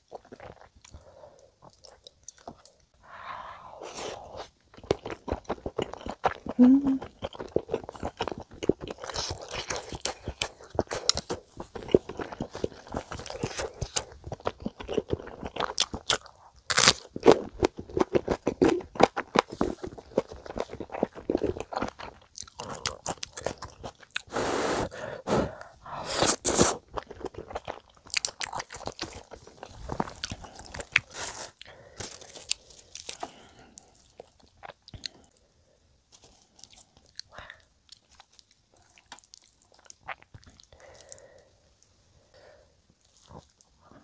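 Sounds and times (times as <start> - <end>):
close chewing with wet mouth clicks: 4.7 - 24.3, 26.3 - 31.2, 36.6 - 41.2.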